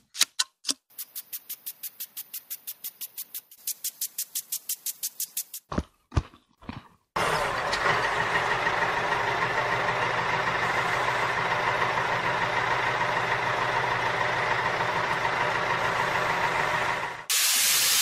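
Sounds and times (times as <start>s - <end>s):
tractor engine idling: 7.2s - 17.3s.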